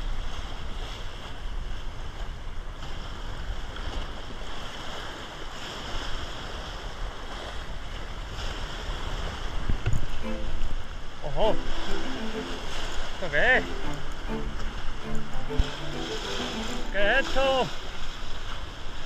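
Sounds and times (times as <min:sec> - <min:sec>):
wind buffeting microphone: 0:00.0 - 0:11.8
waves splashing against rocks: 0:00.0 - 0:19.0.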